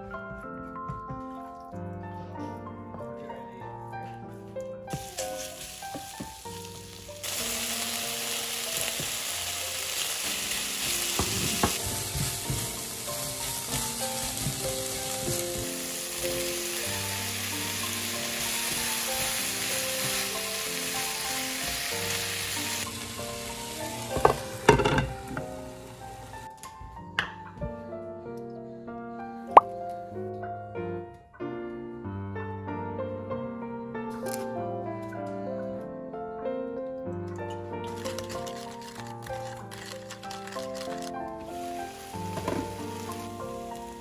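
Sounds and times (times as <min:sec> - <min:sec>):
background music: 0:00.0 - 0:44.0
meat and onion sizzling in a pan: 0:04.9 - 0:26.5, 0:37.9 - 0:44.0.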